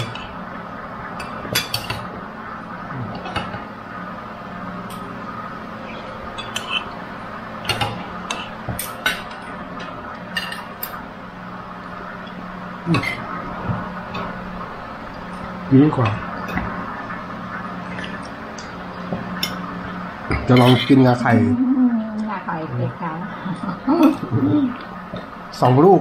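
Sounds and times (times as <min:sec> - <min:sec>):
steady low hum: 0:00.0 - 0:26.0
cutlery clinking on plates: 0:06.4 - 0:06.9, 0:20.3 - 0:20.9.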